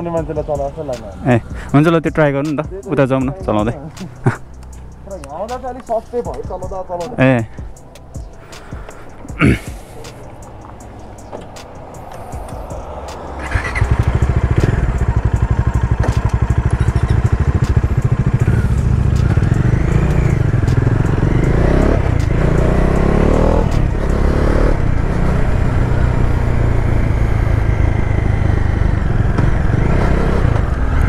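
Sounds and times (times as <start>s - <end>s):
motorcycle engine accelerating: 10.2s - 31.0s.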